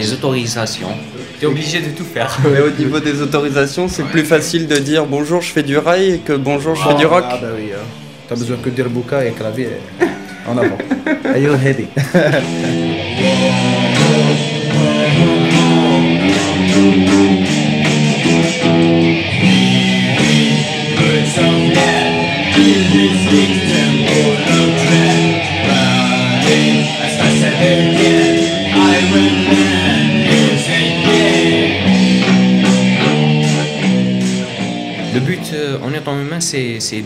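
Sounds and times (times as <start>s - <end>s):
electric guitar riffs: 11.6s - 35.9s
person singing: 12.2s - 18.4s, 19.4s - 34.2s.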